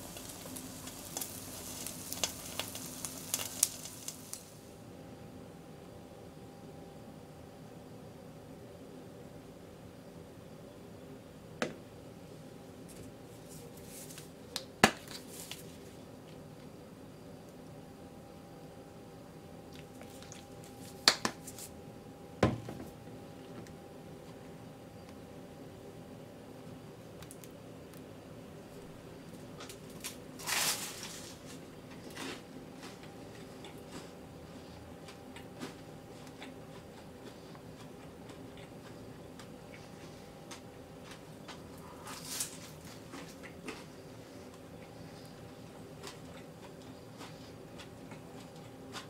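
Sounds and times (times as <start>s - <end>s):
toast crunching: 0.0s - 4.4s, 19.7s - 21.7s, 35.0s - 49.0s
faint steady hum: 0.0s - 49.0s
soft rustle: 12.9s - 14.4s.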